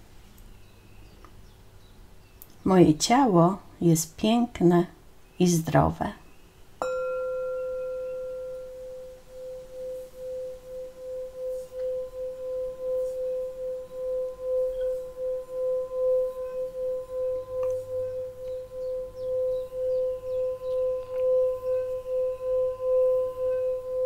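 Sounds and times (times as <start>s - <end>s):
singing bowl ringing: 6.8s - 24.0s.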